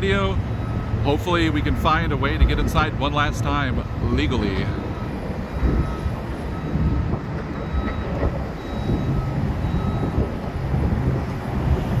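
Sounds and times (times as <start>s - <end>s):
diesel machinery rumbling: 0.0s - 12.0s
faint beeps: 4.8s - 10.3s.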